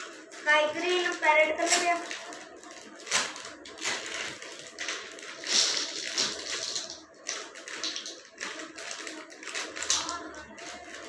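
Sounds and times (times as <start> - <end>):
plastic packet crinkling: 0.0 - 11.0
plastic blocks clattering: 3.2 - 11.0.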